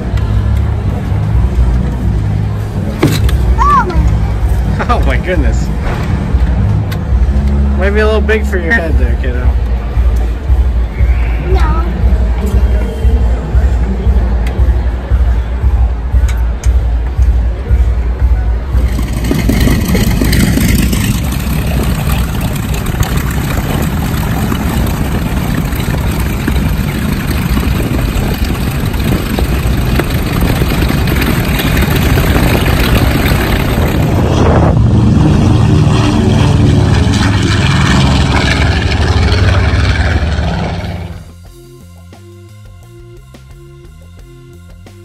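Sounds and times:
propeller aircraft engines running: 0.0s - 45.0s
jet aircraft taxiing: 16.1s - 41.4s.

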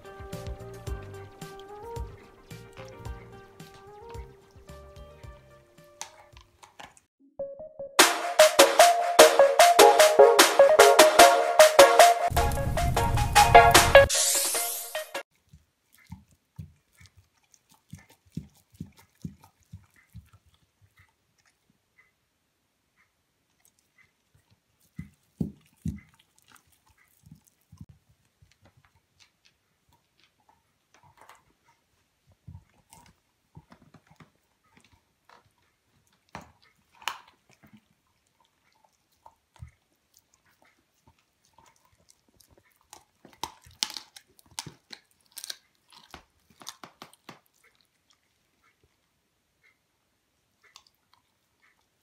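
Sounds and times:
dog chewing bones: 0.2s - 7.1s, 15.4s - 21.8s, 23.4s - 49.2s.

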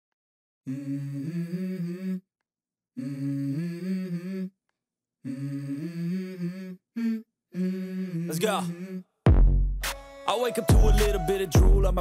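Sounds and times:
low voice humming a melody: 0.7s - 2.3s, 3.0s - 4.6s, 5.2s - 9.1s.

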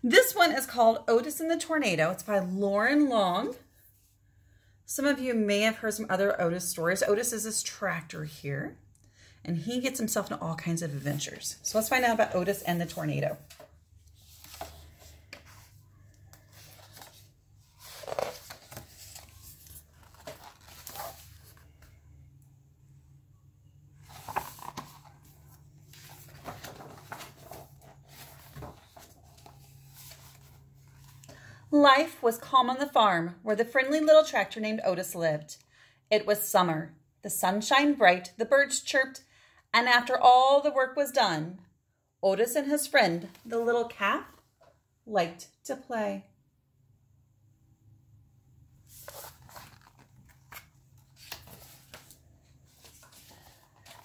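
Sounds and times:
book pages turning: 10.9s - 22.0s, 24.0s - 31.3s, 48.8s - 54.0s.

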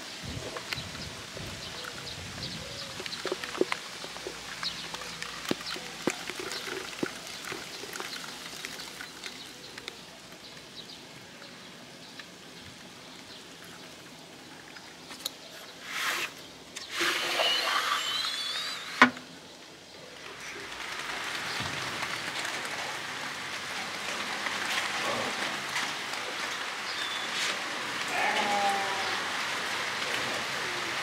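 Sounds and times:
rain falling and dripping: 0.0s - 31.0s.

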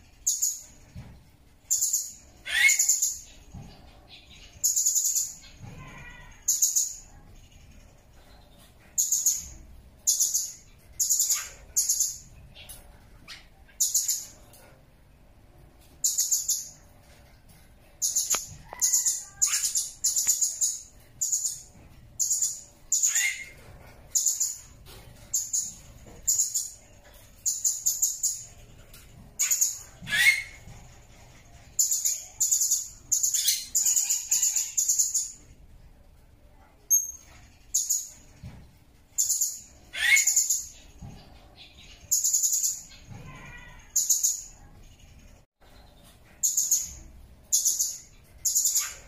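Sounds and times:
parrot shrill high calls: 2.4s - 3.0s, 18.3s - 20.8s, 23.0s - 23.6s, 29.4s - 30.7s, 39.9s - 40.6s.

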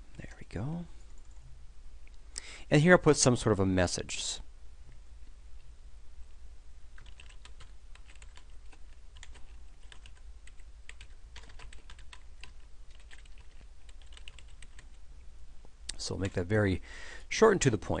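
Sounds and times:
computer keyboard typing: 1.2s - 1.4s, 7.0s - 15.0s.

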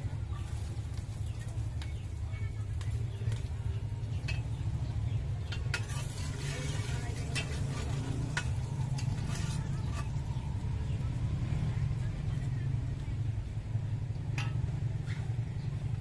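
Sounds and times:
spoon stirring vegetables: 5.4s - 10.4s
vegetables sizzling in pot: 5.4s - 10.7s.

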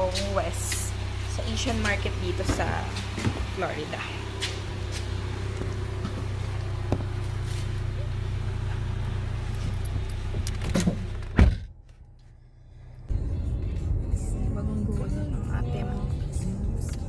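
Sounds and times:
low hum: 0.0s - 17.0s
clicks and rattles climbing into car: 9.6s - 11.7s
car door slamming: 9.7s - 11.8s.

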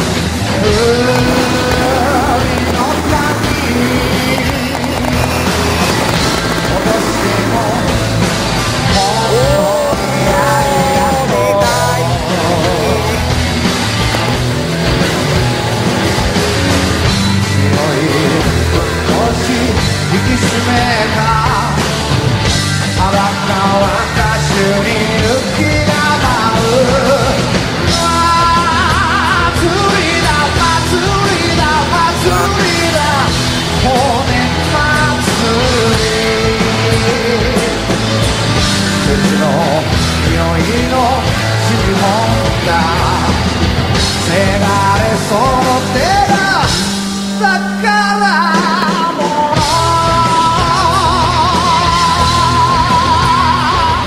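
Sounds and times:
rock song with singing: 0.0s - 54.0s.

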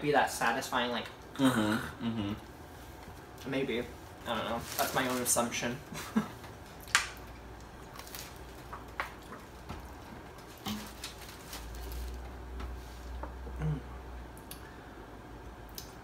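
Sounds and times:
paper wrappers rustling: 4.2s - 6.0s, 7.6s - 13.2s.

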